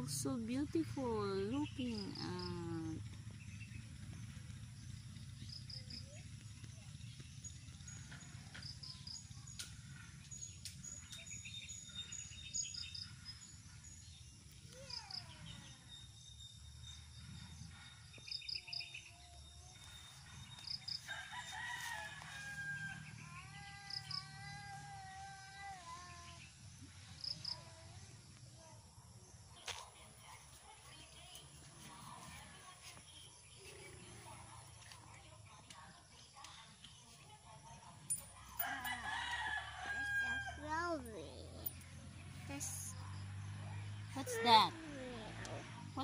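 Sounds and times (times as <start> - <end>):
low steady rumble: 0.0 - 14.6
rooster crowing: 21.0 - 24.0, 38.6 - 40.9.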